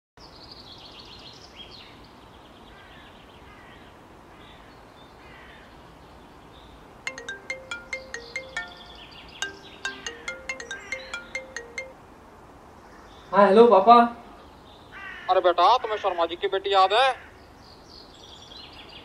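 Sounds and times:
mobile phone ringtone: 7.1 - 12.0.

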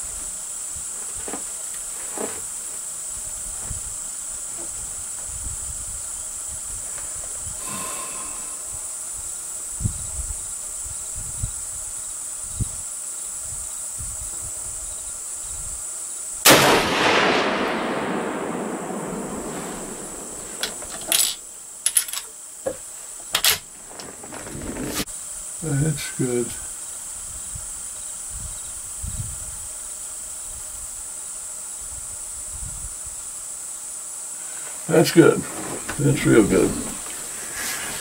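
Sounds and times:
high-pitched insect chorus: 0.0 - 38.0
rifle shot: 16.5 - 21.4.

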